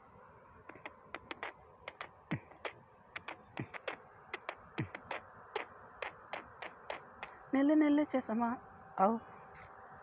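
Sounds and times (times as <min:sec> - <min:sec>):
mouth percussion clicks and pops: 0:00.6 - 0:07.4.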